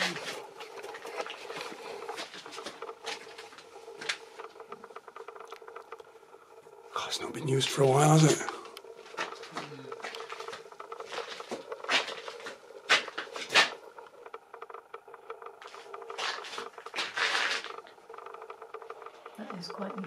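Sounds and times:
steady low hum: 0:00.0 - 0:20.0
footsteps crunching on gritty stone: 0:09.1 - 0:13.7.

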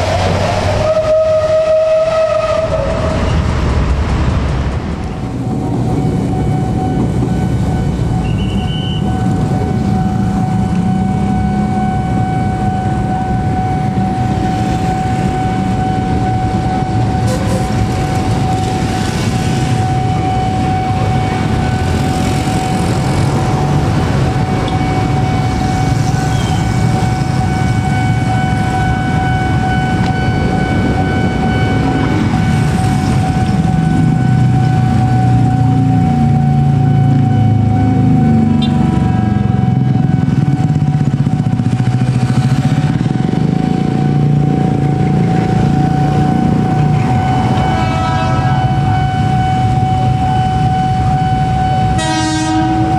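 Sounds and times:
motorcycle engines rumbling: 0:00.0 - 0:52.9
level-crossing warning bell ringing: 0:05.1 - 0:52.9.

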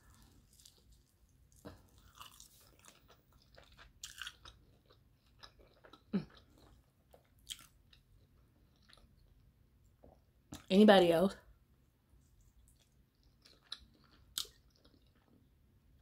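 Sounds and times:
crunchy chewing: 0:00.0 - 0:09.3, 0:12.6 - 0:15.5.

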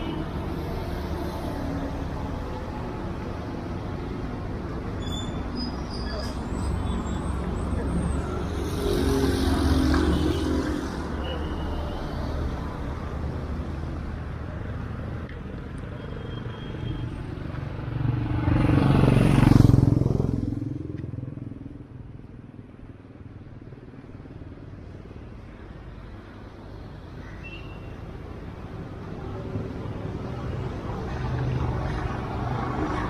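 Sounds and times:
street background noise: 0:00.0 - 0:33.0
vehicle passing by: 0:17.8 - 0:20.9.

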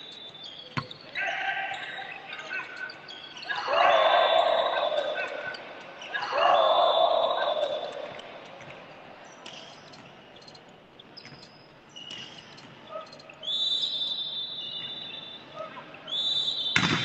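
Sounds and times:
referee's whistle blast: 0:16.1 - 0:17.0.

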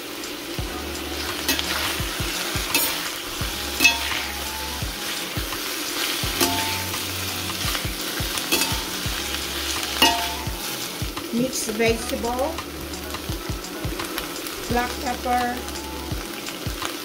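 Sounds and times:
vegetables sizzling in hot oil: 0:00.0 - 0:17.0
metal spoons clinking on pan: 0:03.8 - 0:04.3, 0:06.3 - 0:07.0, 0:08.5 - 0:09.0, 0:10.0 - 0:10.5.

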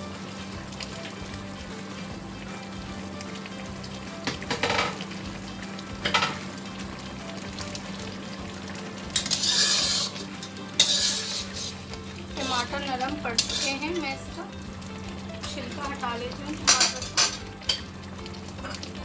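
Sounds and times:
sauce sizzling: 0:00.0 - 0:19.0
metal spatula scraping wok: 0:09.1 - 0:14.2.

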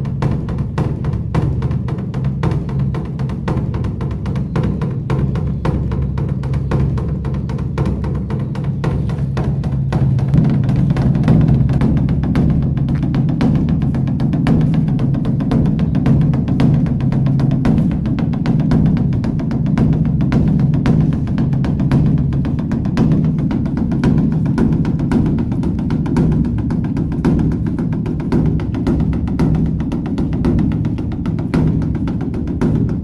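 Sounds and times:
large drum beaten rapidly: 0:00.0 - 0:33.0.

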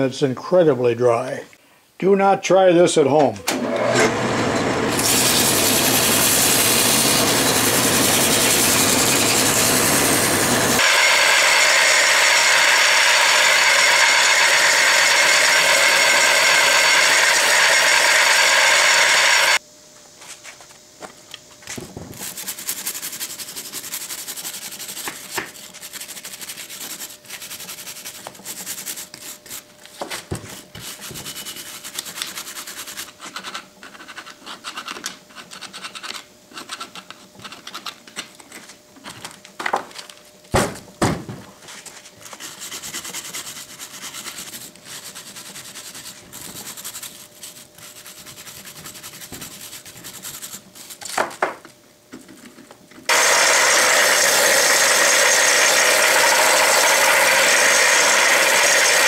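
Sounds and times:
bench grinder running: 0:03.5 - 0:19.6, 0:53.1 - 0:59.0
wire brush scratching metal: 0:22.1 - 0:29.7.

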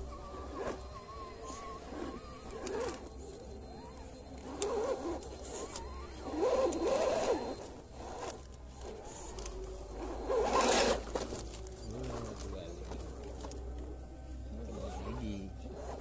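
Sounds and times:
electric motor and gears whining: 0:00.0 - 0:16.0.

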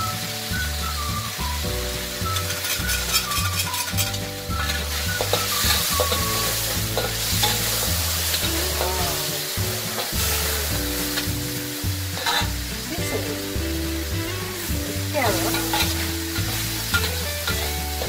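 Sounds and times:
beef sizzling in a wok: 0:00.0 - 0:18.0
metal spatula scraping pan: 0:02.2 - 0:11.3, 0:12.1 - 0:12.8, 0:15.3 - 0:18.0.

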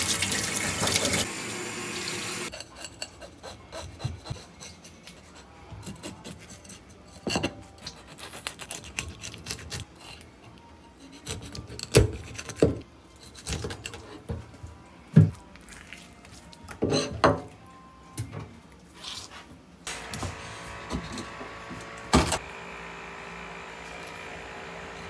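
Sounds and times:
tap water running: 0:00.0 - 0:02.5.

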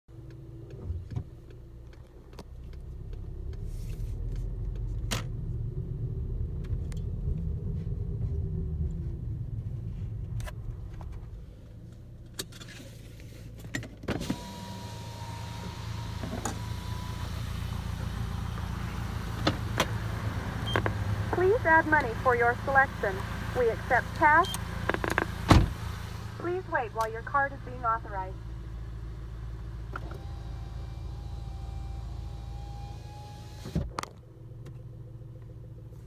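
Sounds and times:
car rolling rumble from inside: 0:00.1 - 0:36.0
car window lowering: 0:14.0 - 0:21.3, 0:24.4 - 0:26.1.

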